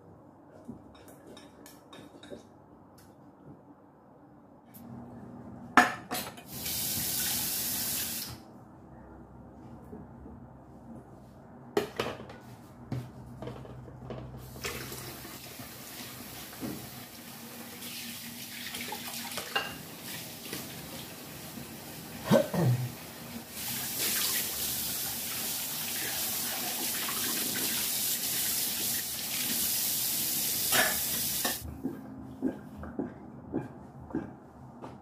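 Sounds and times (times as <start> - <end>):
dishes clinking: 0.9 - 2.5, 19.4 - 19.8
tap water running: 6.5 - 8.4, 14.4 - 22.3, 22.9 - 31.6.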